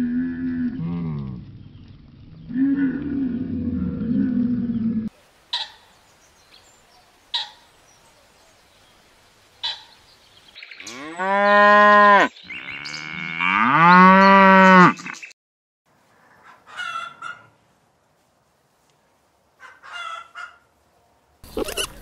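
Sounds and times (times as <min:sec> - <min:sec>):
cow mooing: 0:10.8 - 0:15.2.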